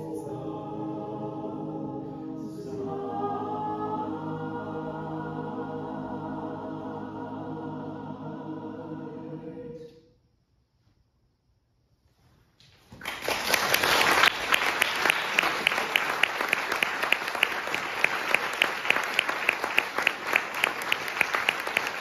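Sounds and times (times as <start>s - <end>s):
hands clapping close by: 12.6s - 22.0s
audience applause: 13.0s - 22.0s.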